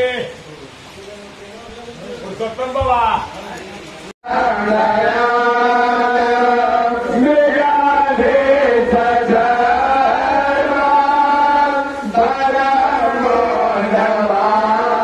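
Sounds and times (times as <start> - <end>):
man chanting into a microphone: 4.2 - 15.0.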